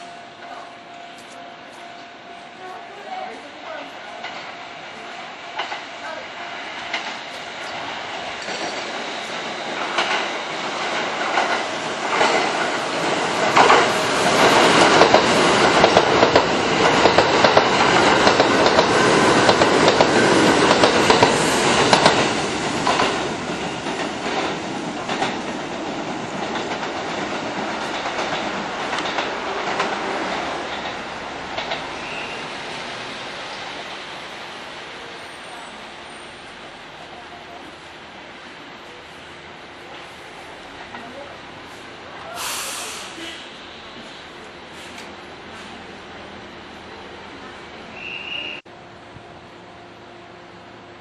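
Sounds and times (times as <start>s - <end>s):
electric train passing: 0.0s - 51.0s
wheels clacking over rail joints: 6.7s - 32.3s.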